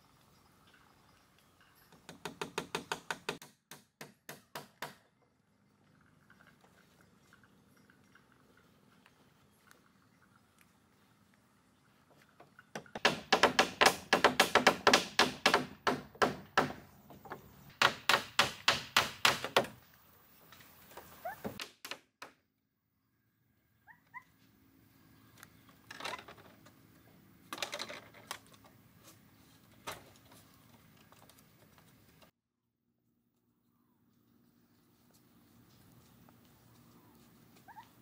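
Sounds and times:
hand tool striking wood: 2.1 - 5.0, 12.9 - 16.8.

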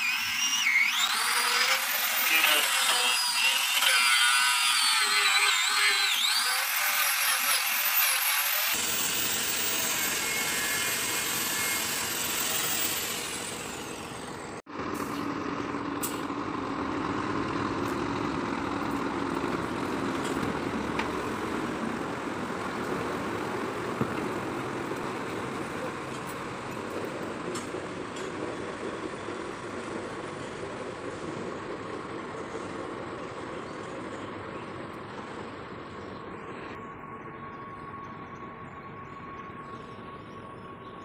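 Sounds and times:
power tool whining: 0.0 - 14.6
diesel truck engine idling: 13.4 - 41.0.

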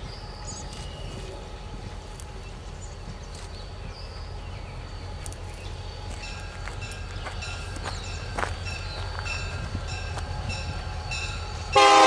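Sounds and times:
birds chirping: 0.0 - 11.8
locomotive engine rumbling: 0.0 - 12.0.

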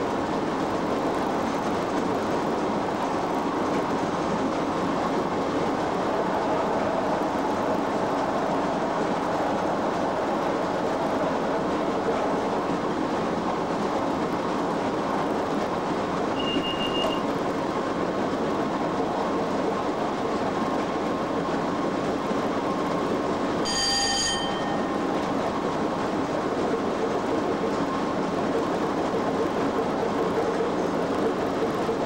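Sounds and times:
train wheels on rail: 0.0 - 32.0
ringing high tone: 23.6 - 24.9.

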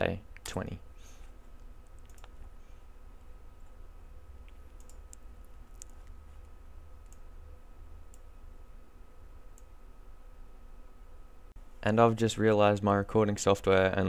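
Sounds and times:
low electrical hum: 0.0 - 14.0
computer mouse clicks: 1.6 - 2.5, 4.4 - 7.2, 8.1 - 8.3.

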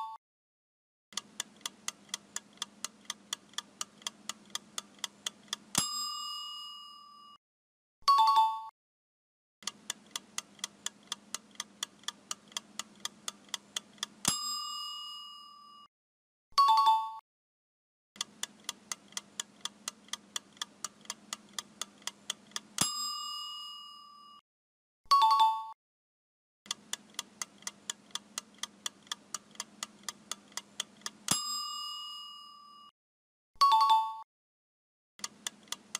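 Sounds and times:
fast clock ticking: 1.1 - 6.1, 9.6 - 14.6, 18.2 - 23.1, 26.7 - 31.5, 35.2 - 35.9
bell ding: 5.8 - 7.4, 14.3 - 15.9, 22.8 - 24.4, 31.3 - 32.9, 33.6 - 34.2.

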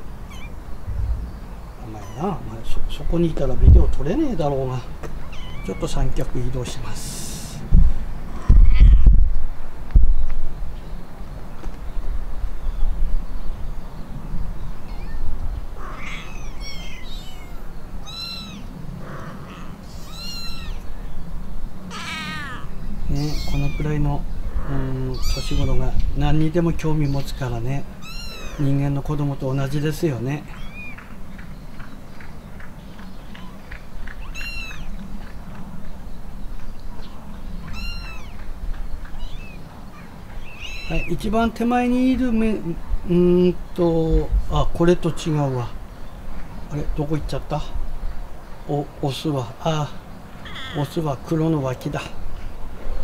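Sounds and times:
low background rumble: 0.0 - 9.8
kittens mewing: 0.2 - 2.7, 5.1 - 6.0, 8.3 - 9.1, 14.9 - 20.9, 21.9 - 24.1, 24.7 - 26.0, 28.0 - 28.8, 30.4 - 31.1, 33.4 - 35.0, 37.6 - 38.4, 39.1 - 41.3, 50.4 - 51.0
low steady rumble: 0.6 - 4.2.

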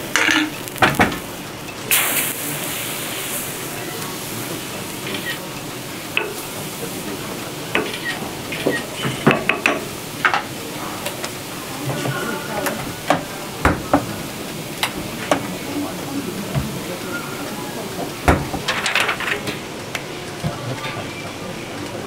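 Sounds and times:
crepe batter sizzling on griddle: 0.0 - 15.8.

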